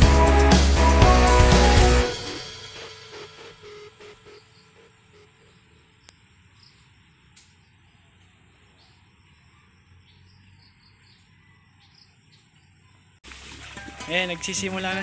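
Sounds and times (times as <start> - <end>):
soft insect chirps: 4.3 - 12.8.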